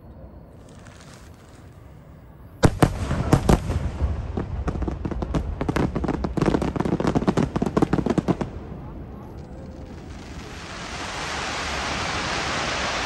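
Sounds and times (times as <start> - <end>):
firework bangs and crackling: 2.6 - 13.0
firework hiss: 9.6 - 13.0.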